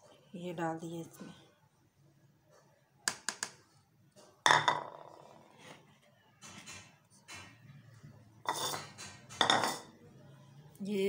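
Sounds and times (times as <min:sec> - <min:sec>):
bowl clinking on stone countertop: 0:04.5 - 0:05.3, 0:08.4 - 0:10.0.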